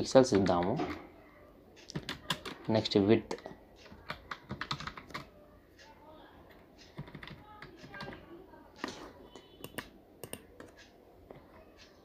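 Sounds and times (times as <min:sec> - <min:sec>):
keyboard typing: 0:00.0 - 0:01.2, 0:01.8 - 0:12.0.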